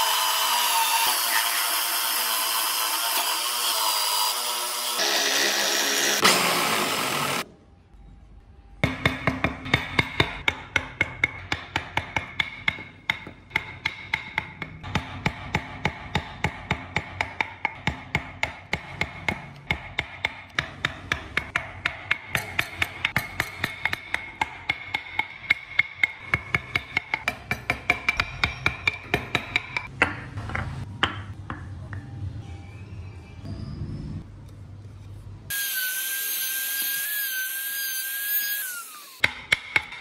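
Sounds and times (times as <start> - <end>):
chisel tapping wood: 9.1 - 32.0.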